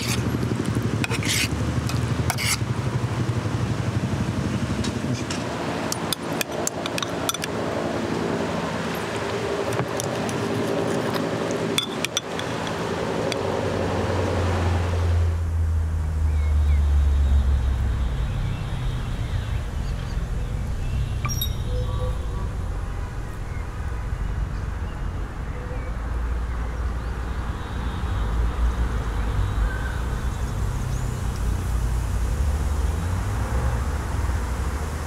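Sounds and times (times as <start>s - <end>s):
metal spoon clinking on ceramic bowl: 11.8s - 12.8s, 21.2s - 21.6s
low rumble: 13.6s - 27.3s.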